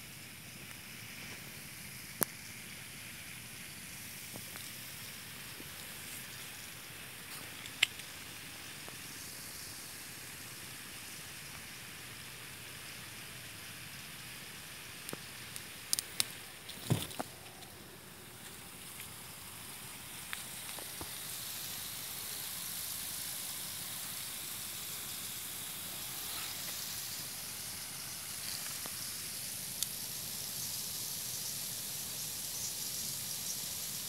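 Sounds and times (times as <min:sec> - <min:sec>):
high outdoor hiss: 0:00.0 - 0:34.0
leaves brushing camera: 0:25.8 - 0:27.3.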